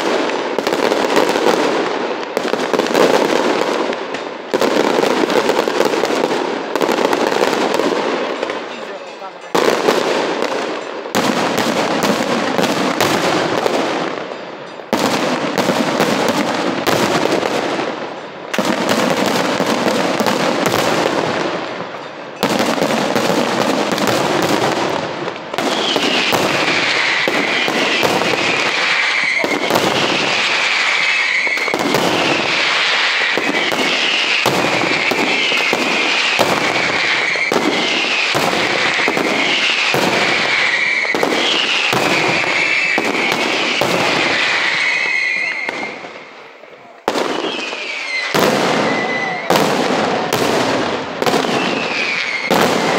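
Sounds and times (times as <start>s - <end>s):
falling fireworks whistles: 0.0s - 52.9s
fireworks bangs and crackling: 0.0s - 52.9s.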